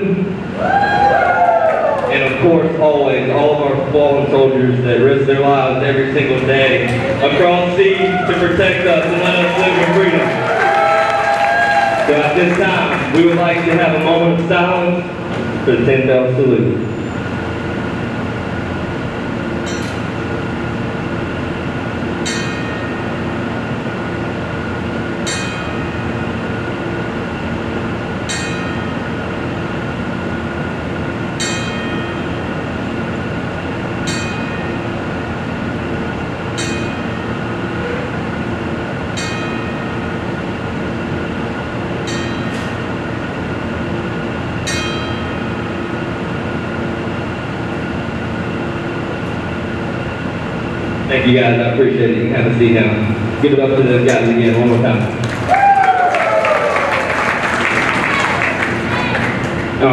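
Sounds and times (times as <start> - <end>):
steady hum: 0.0 - 59.9
ring bell strikes: 19.6 - 20.2, 22.2 - 23.2, 25.2 - 26.1, 28.2 - 29.1, 31.4 - 32.4, 34.0 - 34.8, 36.5 - 38.1, 39.1 - 40.2, 42.0 - 42.8, 44.6 - 45.6.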